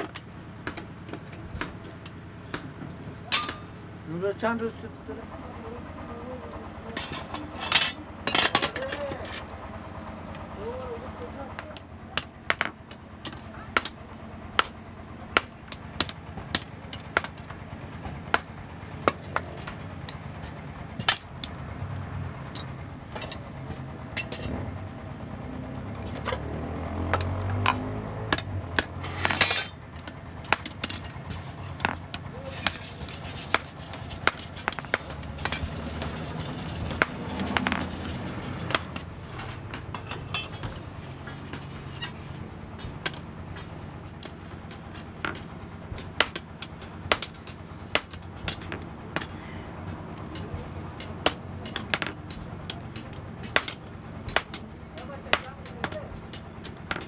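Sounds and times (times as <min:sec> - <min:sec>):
hammer striking metal on anvil: 0:03.3 - 0:04.0, 0:11.6 - 0:17.6, 0:18.3 - 0:20.2, 0:21.0 - 0:23.4, 0:27.1 - 0:36.3, 0:36.9 - 0:37.9, 0:38.6 - 0:40.8, 0:42.8 - 0:57.0.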